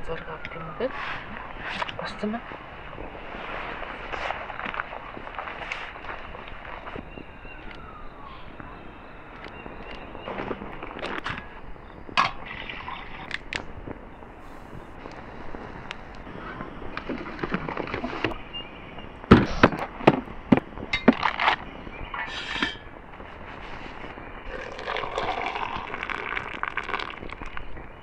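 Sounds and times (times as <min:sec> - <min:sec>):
hot water pouring into coffee press: 0:24.5 - 0:27.6.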